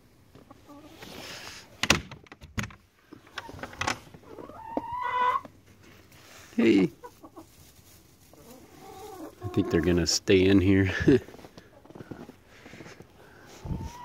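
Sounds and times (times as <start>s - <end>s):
wooden door knocks and clatters: 1.8s - 2.8s.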